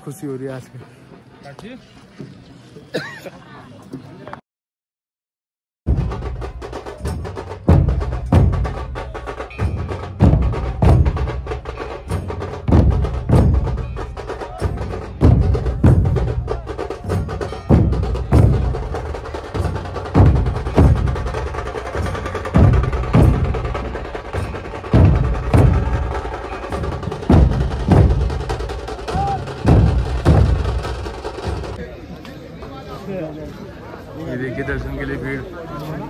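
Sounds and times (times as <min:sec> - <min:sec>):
large drums beaten heavily: 0:05.9 - 0:31.8.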